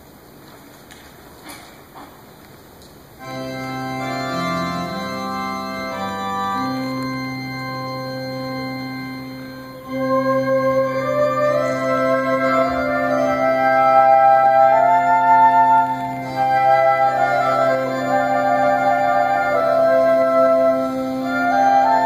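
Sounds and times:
organ playing slow chords: 0:03.2 - 0:22.0.

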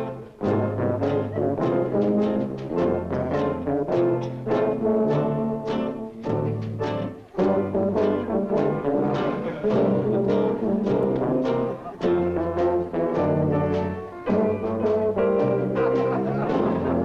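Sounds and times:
brass band playing low chords: 0:00.0 - 0:17.0
steady drum beat: 0:00.0 - 0:17.0.

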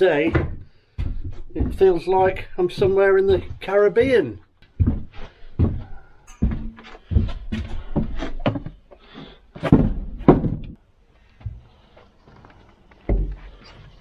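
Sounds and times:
feet thumping on metal roof: 0:00.0 - 0:10.8.

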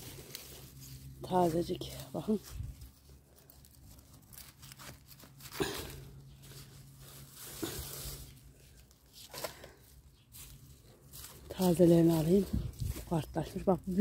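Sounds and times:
leafy greens rustling and tearing: 0:00.0 - 0:14.0.

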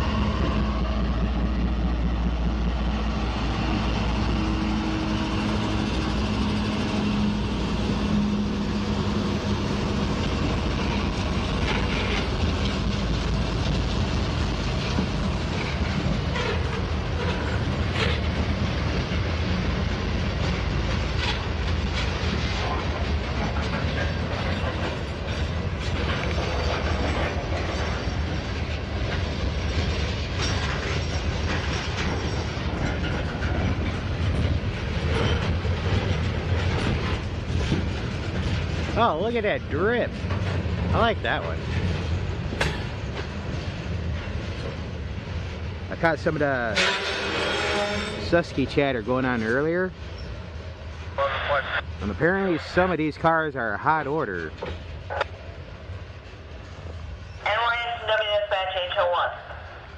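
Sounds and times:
diesel locomotive engine humming: 0:00.0 - 0:59.9
freight cars rumbling: 0:00.0 - 0:59.9
wheels clicking over rail joints: 0:04.0 - 0:51.1.

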